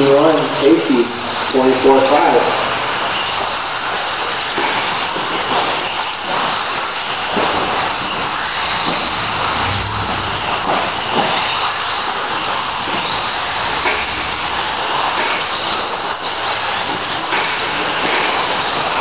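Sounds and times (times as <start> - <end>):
rc car motors whining: 0.1 - 19.0.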